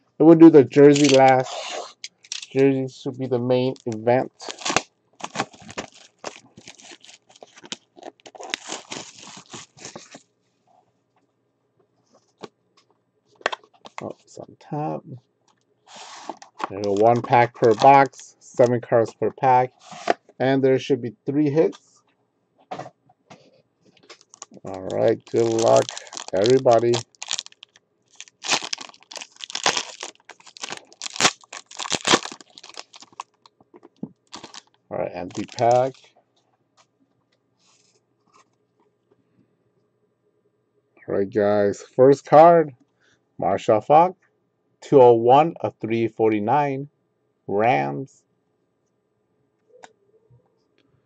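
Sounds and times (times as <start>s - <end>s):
plastic wrap tearing and crumpling: 0.8s - 2.6s, 3.8s - 10.2s, 15.9s - 18.1s, 24.1s - 33.5s, 34.2s - 36.0s.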